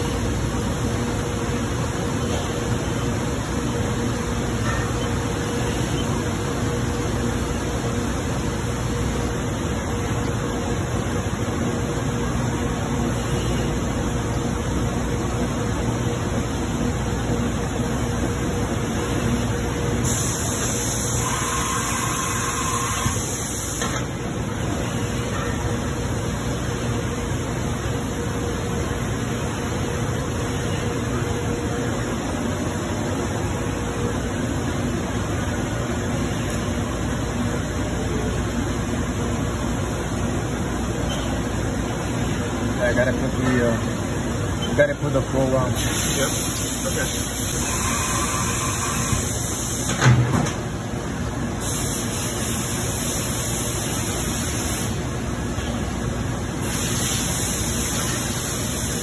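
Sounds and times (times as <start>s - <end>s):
coolant spraying hiss: 20.0s - 23.9s, 45.8s - 48.4s, 51.6s - 55.0s, 56.6s - 59.0s
milling machine running: 20.2s - 25.3s
faint constant hum: 23.4s - 47.6s.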